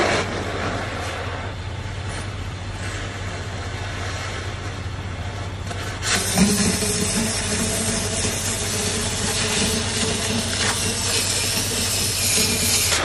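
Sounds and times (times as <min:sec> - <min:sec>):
low hum: 0:00.0 - 0:13.0
cutting oxygen jet: 0:06.0 - 0:13.0
cutting torch hissing: 0:06.0 - 0:13.0.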